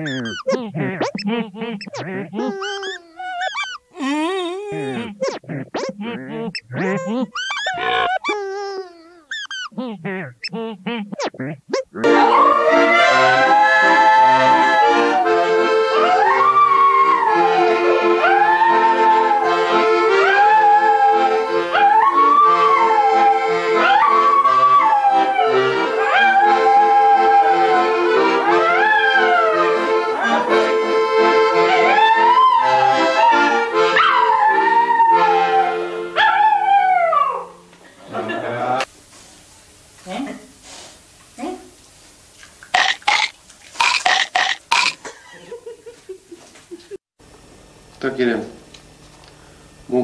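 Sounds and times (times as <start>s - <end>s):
accordion playing a tune: 0.0s - 3.1s, 4.0s - 5.3s, 12.0s - 20.3s, 20.9s - 21.7s, 22.5s - 23.8s, 24.4s - 26.8s, 27.5s - 28.6s, 29.2s - 32.0s, 32.6s - 34.0s
dog howling: 2.4s - 5.2s, 6.7s - 9.8s, 12.0s - 29.7s, 31.6s - 37.6s.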